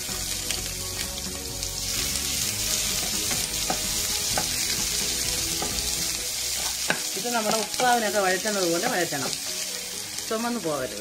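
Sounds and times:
onions sizzling in hot oil: 0:00.0 - 0:11.0
spatula scraping and tapping pan: 0:06.6 - 0:08.0.

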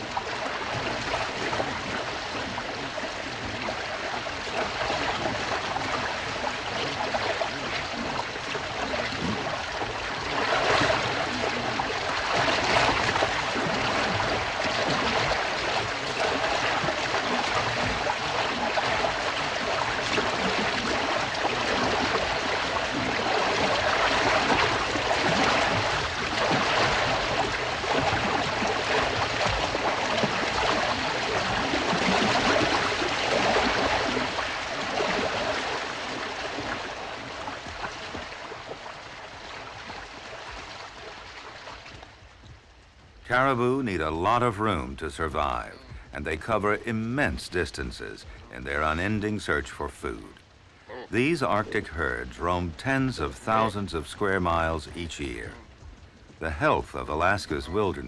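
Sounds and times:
animals splashing through river water: 0:00.0 - 0:43.2.

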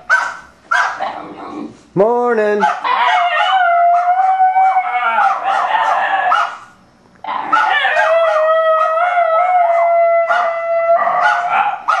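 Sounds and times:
dog yelping: 0:00.0 - 0:01.4, 0:02.6 - 0:12.0
dogs howling: 0:02.7 - 0:06.6, 0:07.3 - 0:12.0.

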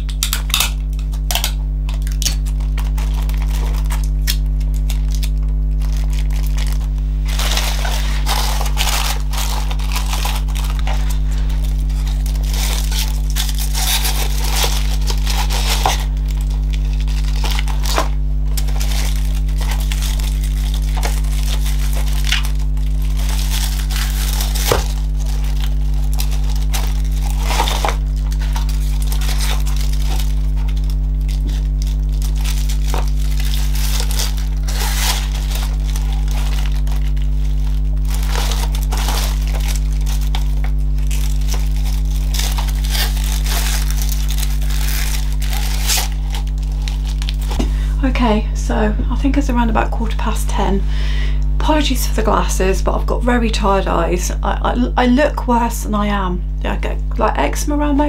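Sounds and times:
low electrical hum: 0:00.0 - 0:58.0
tissue paper and gift bags crinkling: 0:01.9 - 0:48.3.

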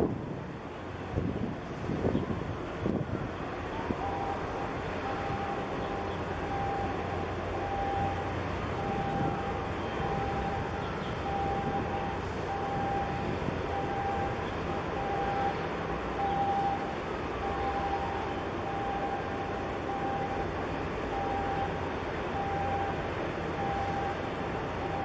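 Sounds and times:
large ship passing: 0:00.0 - 0:25.0.

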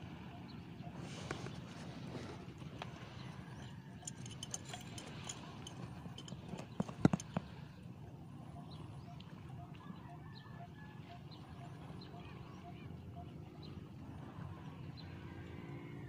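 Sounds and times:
reel ticking: 0:03.9 - 0:07.4
fishing tackle clicks and taps: 0:04.0 - 0:07.5.

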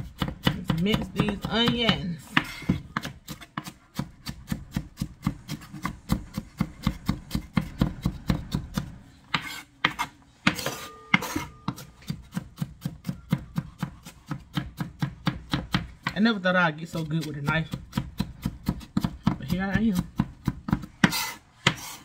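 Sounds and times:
knife chopping on cutting board: 0:00.0 - 0:16.2, 0:17.2 - 0:22.0
knife scraping board: 0:01.6 - 0:07.6, 0:09.3 - 0:12.4, 0:21.0 - 0:22.0.

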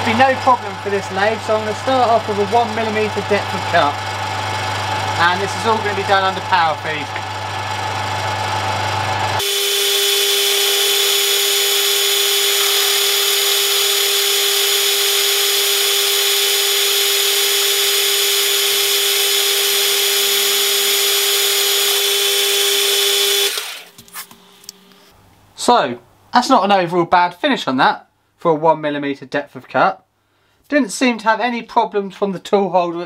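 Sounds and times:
lathe motor whine: 0:00.0 - 0:25.1.

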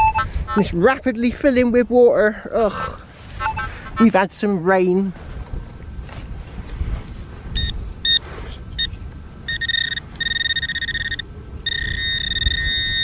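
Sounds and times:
pinpointer probe beeping: 0:07.6 - 0:08.2, 0:08.8 - 0:13.0.

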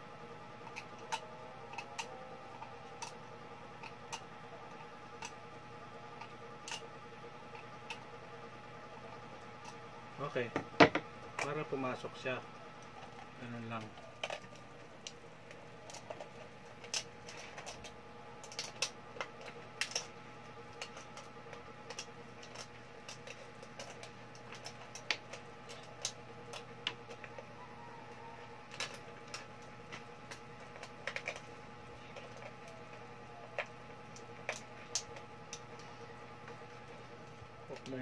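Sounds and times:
faint steady hum: 0:00.0 - 0:38.0
aluminium can pieces clicking: 0:00.6 - 0:03.2, 0:03.8 - 0:05.4, 0:13.8 - 0:20.1, 0:20.7 - 0:27.5, 0:28.7 - 0:35.8.

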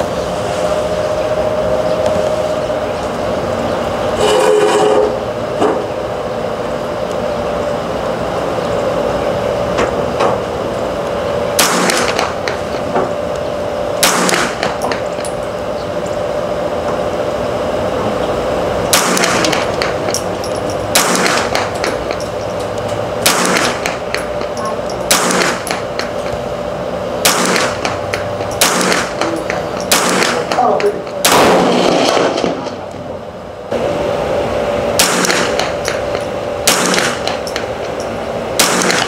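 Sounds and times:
steady hum: 0:00.0 - 0:39.0
rifle shots cracking: 0:11.6 - 0:12.6, 0:14.0 - 0:14.8, 0:18.9 - 0:20.1, 0:20.9 - 0:22.2, 0:23.2 - 0:24.2, 0:25.1 - 0:26.1, 0:27.2 - 0:32.8, 0:35.0 - 0:37.7, 0:38.6 - 0:39.0.

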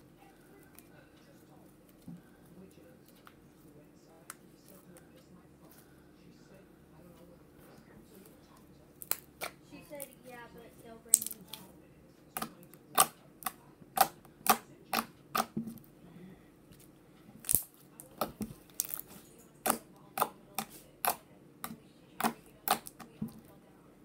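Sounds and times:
slime clicking and popping: 0:09.0 - 0:09.6, 0:11.1 - 0:11.6, 0:12.4 - 0:15.5, 0:17.4 - 0:23.1.

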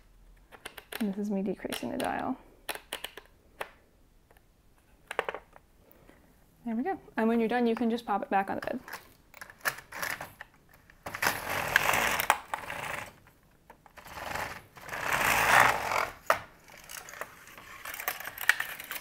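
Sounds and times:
sharp plastic clicks: 0:00.4 - 0:05.4.

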